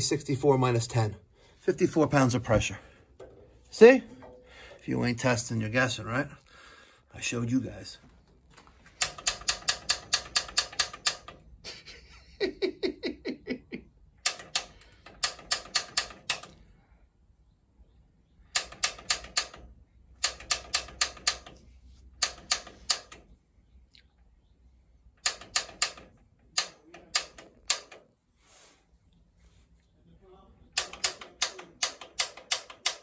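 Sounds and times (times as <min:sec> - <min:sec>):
piezo igniter clicking: 0:09.0 - 0:11.4, 0:14.2 - 0:16.6, 0:18.5 - 0:21.6, 0:22.2 - 0:23.3, 0:25.2 - 0:28.0, 0:30.8 - 0:33.0.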